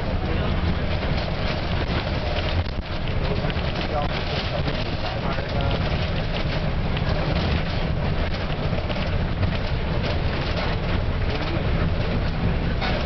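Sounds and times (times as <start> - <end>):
bus engine and road rumble: 0.0 - 13.0
bus fittings rattling: 0.0 - 13.0.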